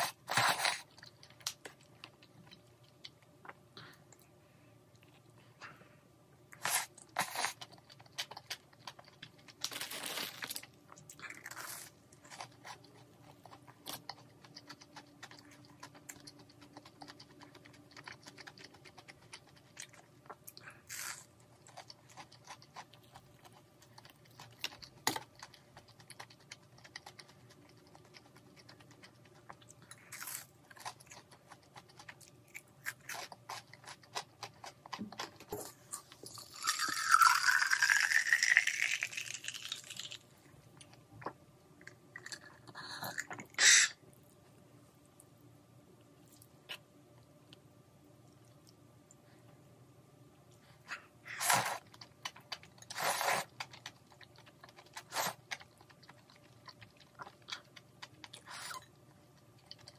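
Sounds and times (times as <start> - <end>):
crunchy chewing: 6.5 - 44.4, 50.6 - 59.9.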